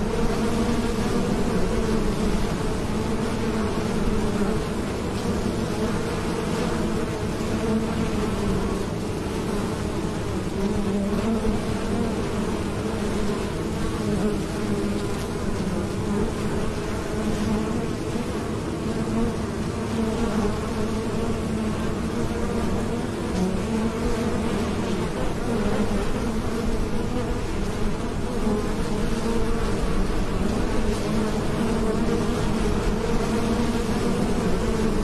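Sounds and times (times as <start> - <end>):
honeybees buzzing: 0.0 - 35.0.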